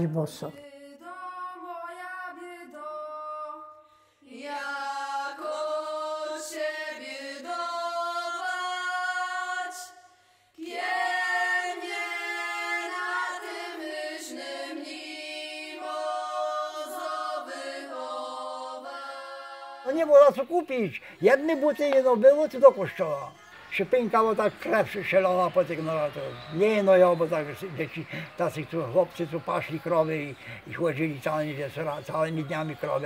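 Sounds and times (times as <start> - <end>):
choir singing long held notes: 1.1 - 20.0.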